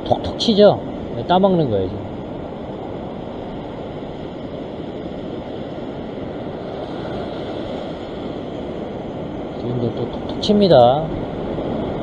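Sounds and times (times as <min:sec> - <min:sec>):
surf washing over rocks: 0:00.0 - 0:12.0
wind noise on microphone: 0:00.0 - 0:12.0.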